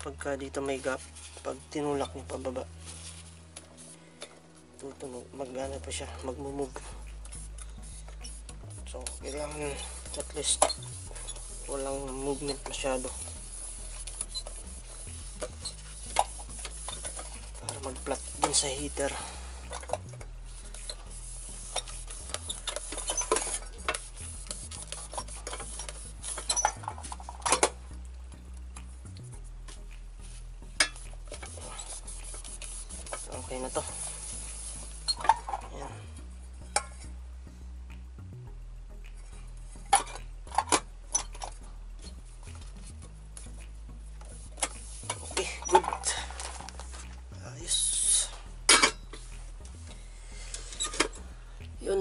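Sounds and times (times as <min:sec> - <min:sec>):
metal pot clinking and knocking: 0:48.7 - 0:49.1.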